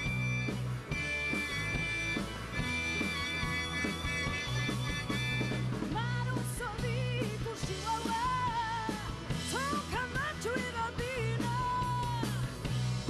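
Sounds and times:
harmonica: 0.0 - 6.0
rock band playing live: 0.0 - 13.0
woman singing: 5.9 - 12.5.

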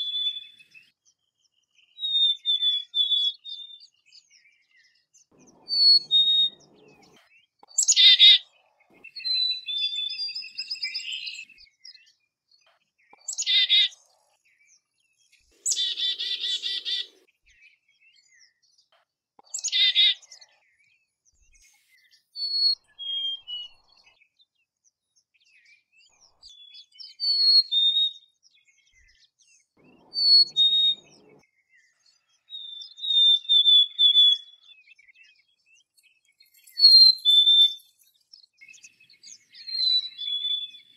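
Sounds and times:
buzzy chickadee calls: 5.4 - 7.2, 15.6 - 17.2, 29.8 - 31.4.

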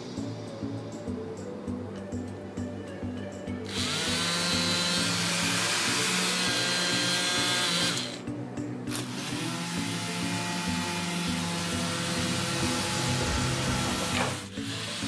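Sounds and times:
small motor whining and whirring: 3.7 - 8.2.

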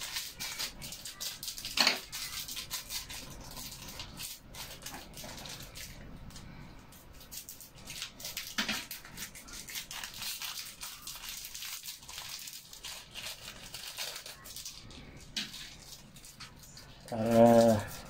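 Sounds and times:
dry leaves crackling by hand: 7.4 - 14.9.

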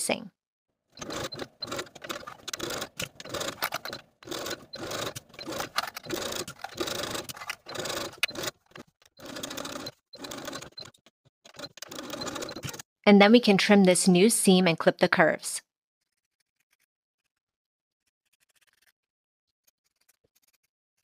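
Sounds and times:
electric sewing machine stitching: 0.9 - 12.9.

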